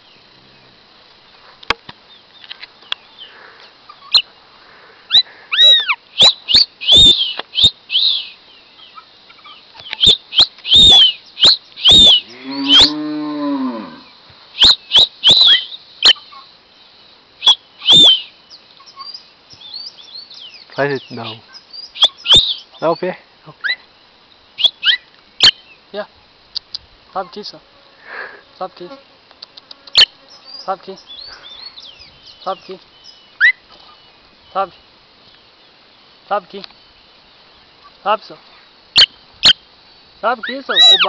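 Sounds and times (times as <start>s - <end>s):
blackbird whistling calls: 5.1s - 8.4s, 9.4s - 13.0s, 14.6s - 16.3s, 17.4s - 23.0s, 24.6s - 25.8s, 30.0s - 33.6s, 39.0s - 39.6s, 40.4s - 41.0s
cow mooing: 12.2s - 14.1s.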